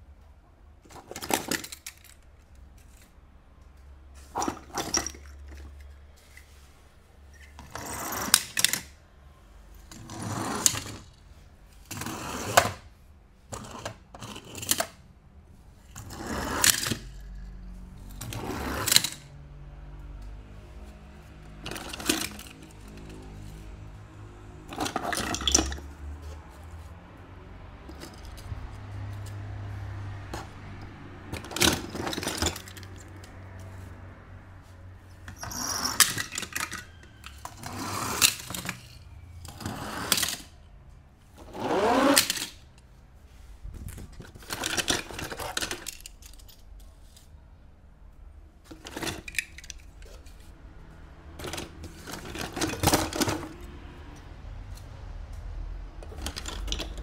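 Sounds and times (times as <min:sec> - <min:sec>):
toy cars clinking: 0:00.8 - 0:03.2, 0:04.2 - 0:06.7, 0:07.3 - 0:09.0, 0:09.8 - 0:11.2, 0:13.5 - 0:15.0, 0:15.8 - 0:19.4, 0:21.5 - 0:23.6, 0:24.6 - 0:26.2, 0:27.8 - 0:29.4, 0:31.3 - 0:33.9, 0:35.0 - 0:40.7, 0:41.4 - 0:42.9, 0:43.9 - 0:47.3, 0:48.6 - 0:50.5, 0:51.4 - 0:53.8, 0:56.0 - 0:57.0.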